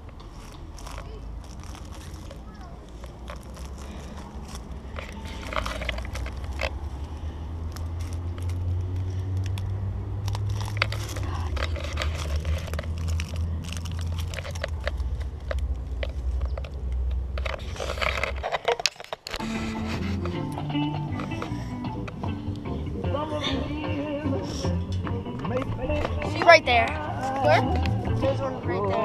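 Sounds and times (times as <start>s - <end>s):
footsteps crunching on mulch: 0.1s - 9.4s.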